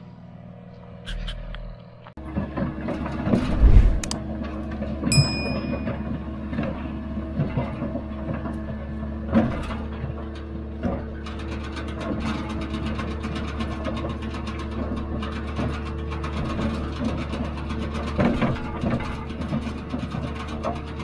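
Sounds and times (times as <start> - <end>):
machine knocks and clanks: 5.6 - 21.0.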